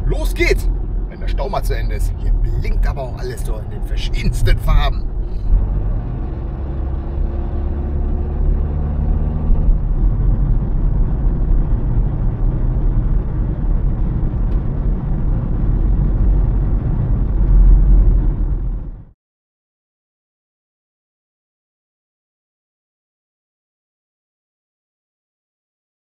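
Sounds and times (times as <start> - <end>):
car engine drone inside cabin: 0.0 - 19.1
road rumble: 0.0 - 19.2.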